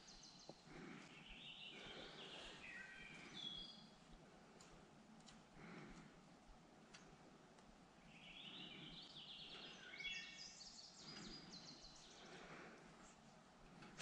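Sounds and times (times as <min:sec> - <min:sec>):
songbird chirping: 0:00.0 - 0:04.0, 0:08.0 - 0:12.8.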